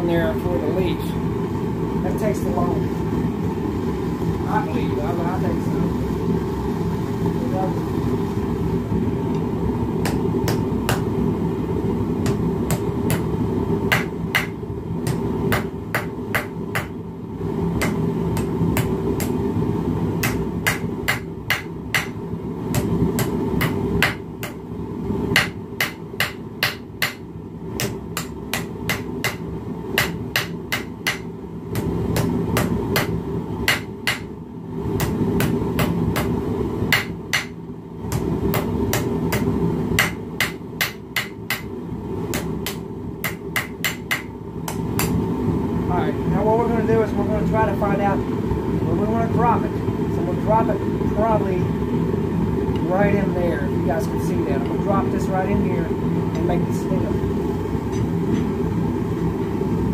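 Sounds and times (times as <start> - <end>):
gas forge burner rushing: 0.0 - 59.9
hammer striking hot steel: 10.0 - 11.1, 12.2 - 17.0, 17.8 - 19.4, 20.2 - 24.6, 25.3 - 34.4, 35.0 - 41.7, 42.3 - 45.2.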